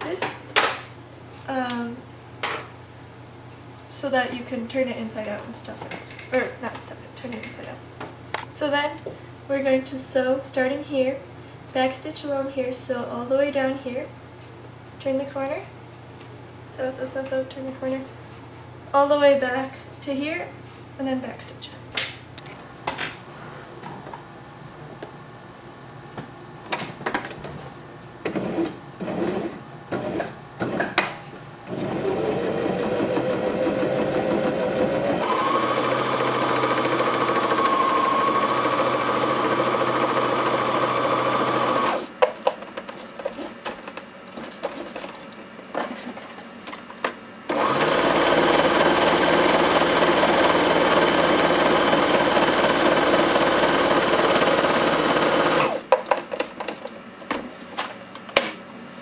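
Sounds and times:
sewing machine whine: 31.7s - 42.1s, 47.5s - 55.8s.

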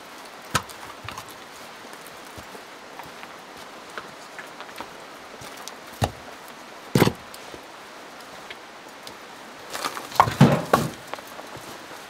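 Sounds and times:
wood logs knocking together: 0.5s - 1.4s, 5.4s - 6.2s, 6.9s - 7.3s, 9.7s - 11.6s.

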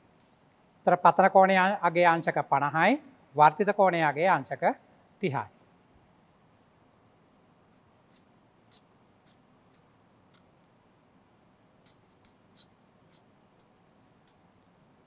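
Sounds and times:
pen scratching on paper: 7.7s - 10.7s, 11.8s - 14.8s.

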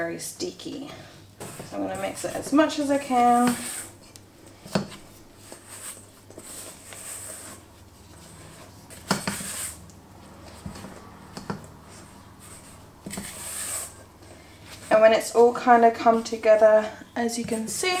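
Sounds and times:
spatula scraping dough in bowl: 1.4s - 4.0s, 4.9s - 15.4s, 17.4s - 18.0s.

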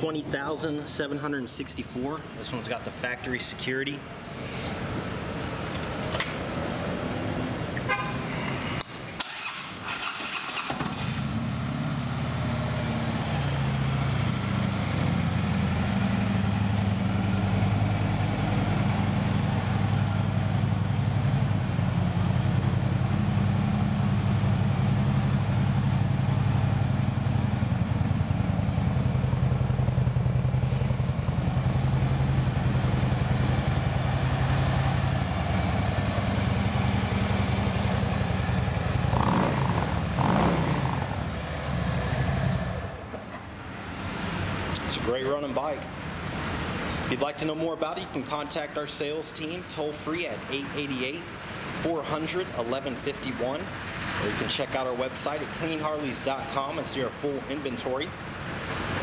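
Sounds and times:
motorcycle engine idling: 11.2s - 43.0s.

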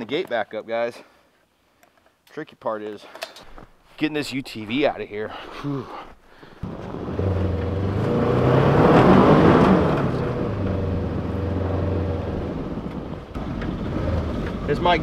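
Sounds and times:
utility vehicle engine humming: 6.6s - 15.0s.

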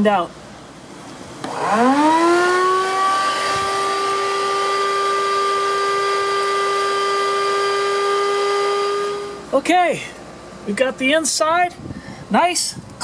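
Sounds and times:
vacuum cleaner whining: 1.4s - 9.5s.

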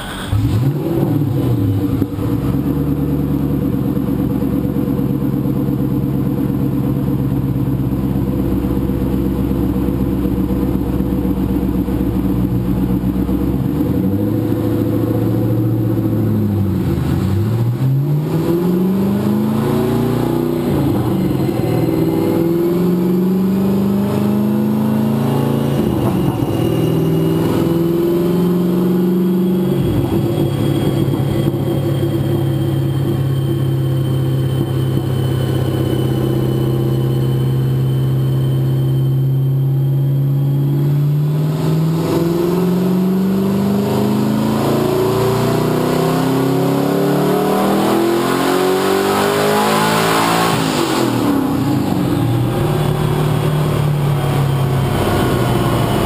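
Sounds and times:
car engine revving under load: 0.0s - 56.0s
thin high whine: 14.3s - 56.0s.

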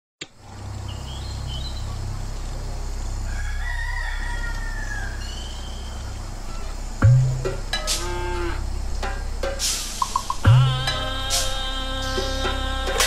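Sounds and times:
steady low hum: 0.2s - 13.0s
high bird chirps: 0.8s - 2.2s, 4.7s - 7.0s
rooster crowing: 3.2s - 6.7s, 7.9s - 8.7s.

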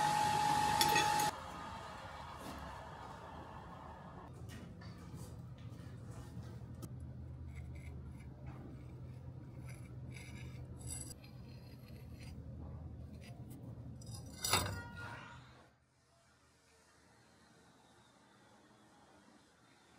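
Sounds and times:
steady low hum: 1.1s - 14.6s
metal clinks and scrapes: 9.6s - 12.0s, 14.0s - 15.3s.

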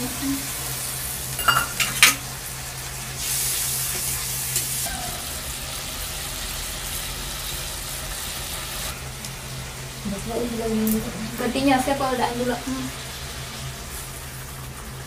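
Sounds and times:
curry sizzling in a pan: 0.0s - 15.0s
metal bowl clinking: 1.4s - 2.2s.

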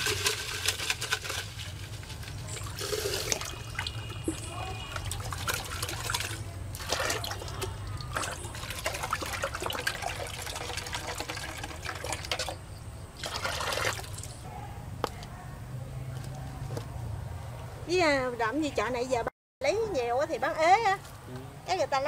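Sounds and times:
water pouring and splashing: 0.0s - 12.6s, 13.2s - 14.4s.

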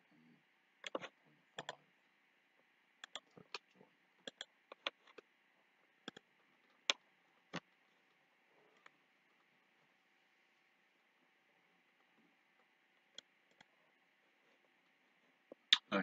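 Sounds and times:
computer mouse clicking: 0.8s - 1.8s, 3.0s - 5.2s, 6.0s - 7.7s, 13.0s - 13.7s.

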